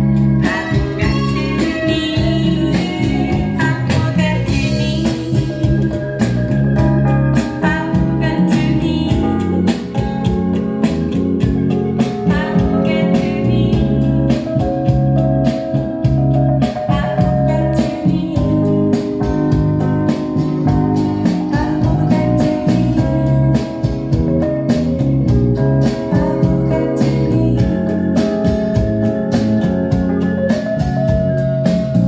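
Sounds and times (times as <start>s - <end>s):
guitar with steady beat: 0.0s - 32.0s
woman singing blues: 0.4s - 5.8s, 7.6s - 9.6s, 12.3s - 14.4s, 16.8s - 18.8s, 21.1s - 23.8s, 26.1s - 28.0s.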